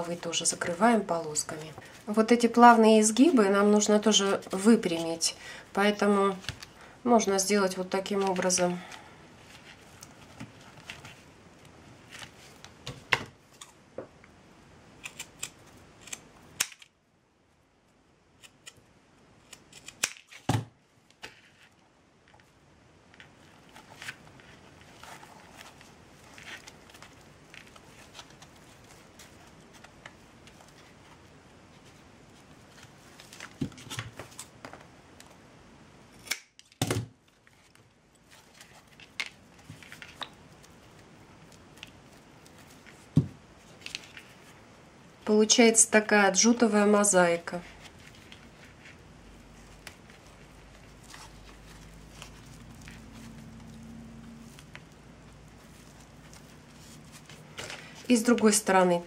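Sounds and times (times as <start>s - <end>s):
scissors snipping twine: 19.5s - 20.2s.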